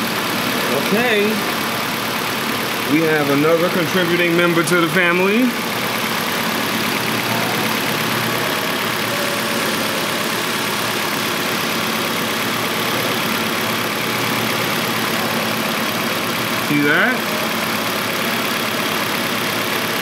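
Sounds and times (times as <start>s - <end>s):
car engine idling: 0.0s - 20.0s.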